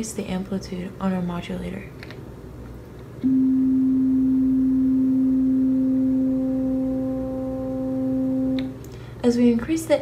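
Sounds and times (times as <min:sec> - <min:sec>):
synthesizer steady note: 0:03.2 - 0:08.7.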